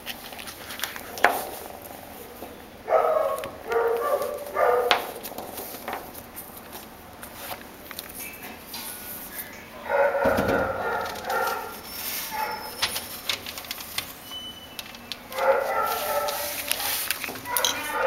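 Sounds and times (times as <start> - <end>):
dogs barking: 2.2 - 5.4, 9.7 - 12.8, 15.3 - 18.0
rustling and bumping on camera: 10.2 - 11.8.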